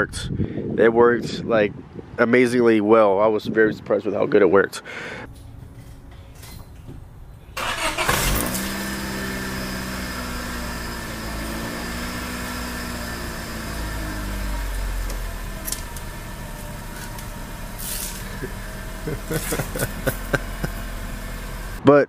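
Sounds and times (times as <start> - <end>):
car engine starting and idling: 5.3 - 21.8.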